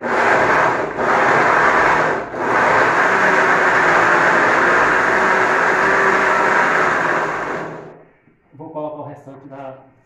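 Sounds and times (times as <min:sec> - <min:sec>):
blender running: 0:00.0 - 0:08.0.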